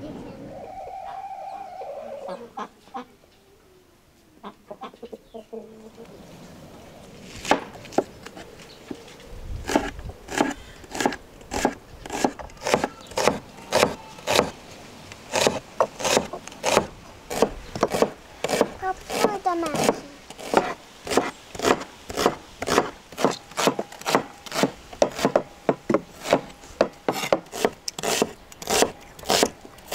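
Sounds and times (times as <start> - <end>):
knife chopping on wooden board: 9.7 - 14.5, 15.4 - 29.9.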